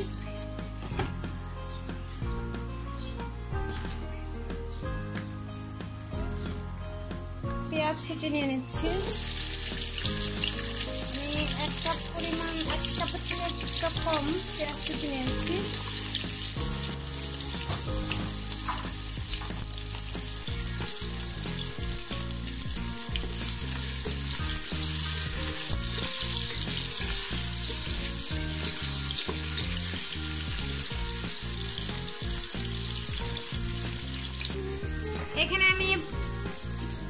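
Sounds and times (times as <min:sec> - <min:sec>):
low background music: 0:00.0 - 0:37.0
onions sizzling in oil: 0:08.8 - 0:34.8.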